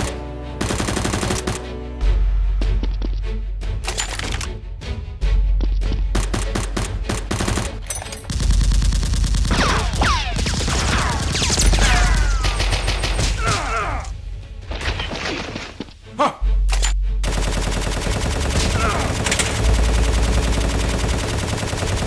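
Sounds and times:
rapid gunfire: 0:00.0 - 0:01.6, 0:06.2 - 0:13.3, 0:17.2 - 0:22.0.

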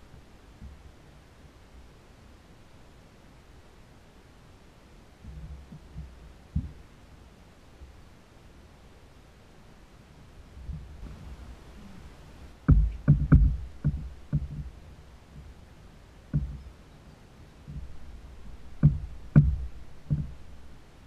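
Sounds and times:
knocks on plastic kayak hull: 0:12.6 - 0:14.8, 0:16.3 - 0:16.6, 0:18.7 - 0:20.4.

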